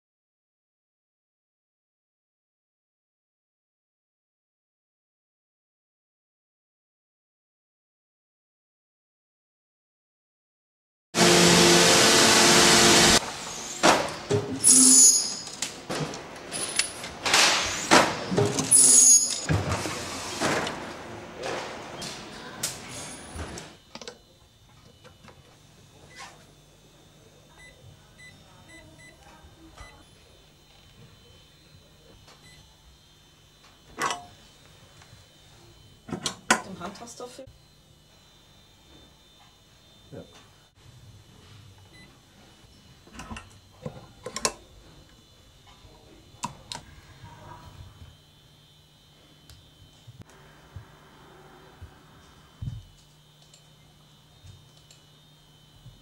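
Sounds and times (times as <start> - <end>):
industrial machine bursts: 11.2 - 25.2
thin high whine: 11.2 - 56.0
short high keypad beeps: 14.6 - 15.6
faint steady hum: 23.8 - 56.0.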